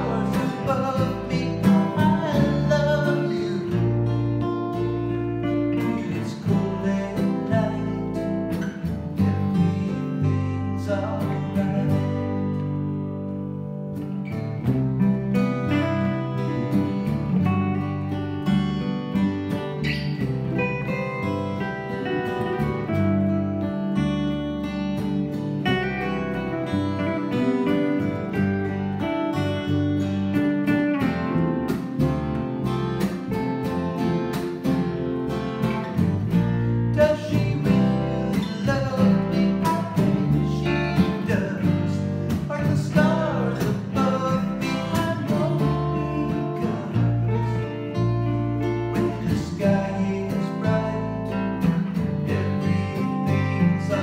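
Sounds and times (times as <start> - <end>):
man singing: 0.0 - 4.1, 5.4 - 8.6, 9.5 - 12.6, 26.6 - 28.8, 36.8 - 48.0, 48.6 - 54.0
acoustic guitars strumming: 0.0 - 54.0
electric bass: 0.0 - 54.0.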